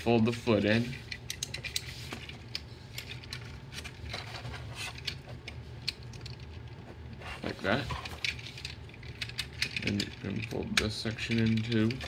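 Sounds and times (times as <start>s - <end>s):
faint low hum: 0.0s - 12.0s
plastic toy parts clicking: 0.9s - 1.9s, 8.1s - 12.0s.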